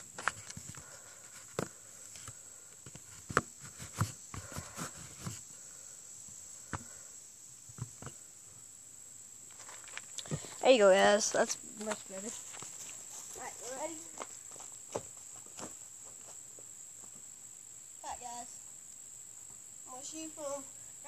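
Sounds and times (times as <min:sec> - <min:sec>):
insects buzzing: 0:00.0 - 0:21.0.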